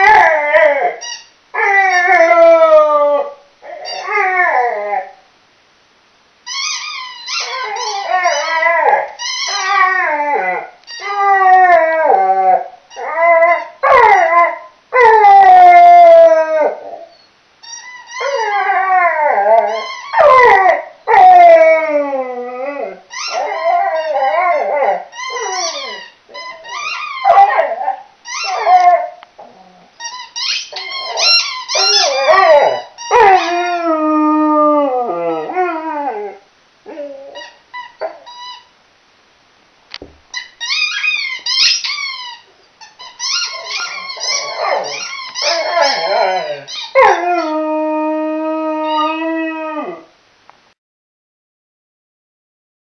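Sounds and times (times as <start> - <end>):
dog howling and whining: 0.0 - 5.3, 6.5 - 38.7, 40.4 - 50.2
squeaky ball toy: 1.0 - 1.3, 3.8 - 4.1, 6.5 - 8.6, 9.2 - 9.8, 10.9 - 11.2, 17.6 - 18.3, 19.7 - 20.1, 23.1 - 24.3, 25.1 - 27.4, 28.2 - 29.0, 30.0 - 33.5, 37.3 - 38.7, 40.3 - 47.0.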